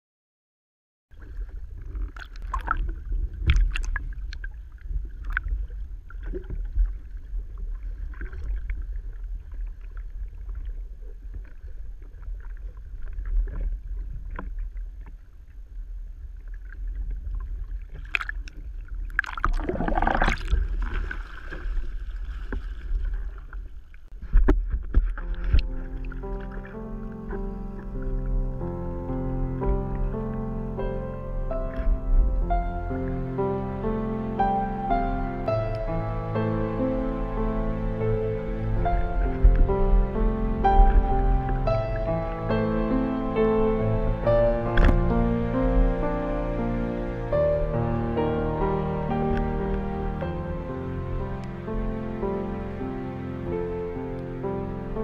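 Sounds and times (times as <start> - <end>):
water rushing and splashing: 1.2 - 55.0
wind buffeting microphone: 1.3 - 15.0, 38.0 - 46.2.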